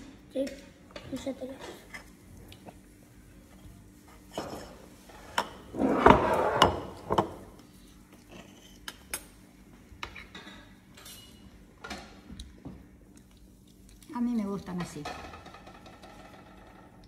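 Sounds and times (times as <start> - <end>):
cutlery and plates clinking: 10.0 - 12.2.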